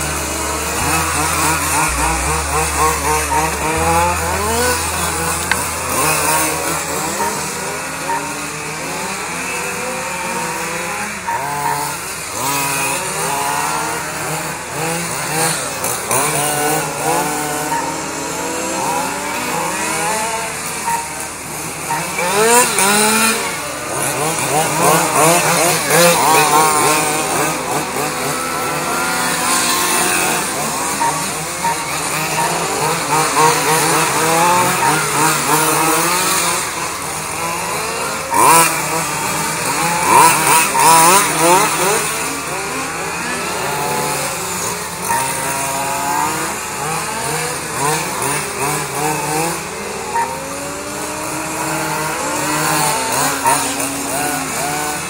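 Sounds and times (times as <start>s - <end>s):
rc car engines buzzing: 0.0s - 55.0s.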